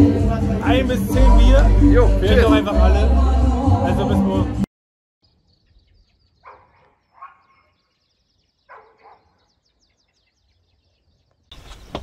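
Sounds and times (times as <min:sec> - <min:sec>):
faint dog barks: 0:06.4 - 0:07.8, 0:08.7 - 0:09.4.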